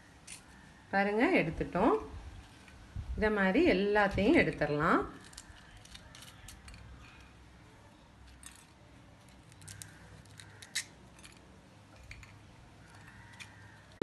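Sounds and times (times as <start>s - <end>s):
toothpicks clicking and crackling: 9.3s - 13.6s.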